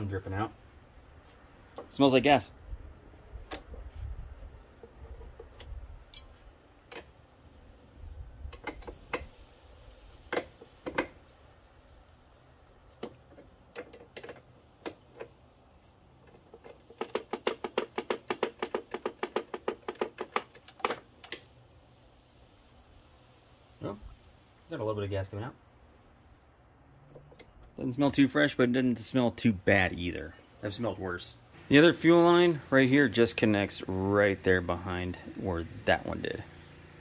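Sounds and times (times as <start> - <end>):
metal wrenches clicking: 13.7 - 15.4.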